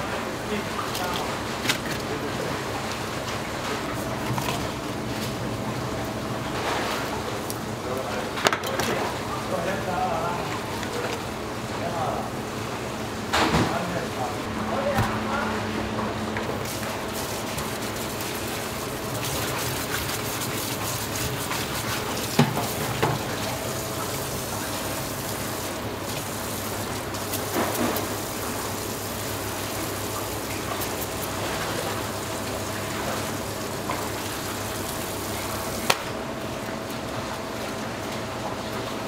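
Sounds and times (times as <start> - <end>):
tap water running into sink: 16.7 - 29.2.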